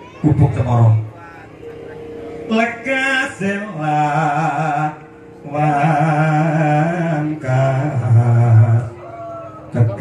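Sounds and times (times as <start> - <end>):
man singing slow long notes: 2.3 - 10.0.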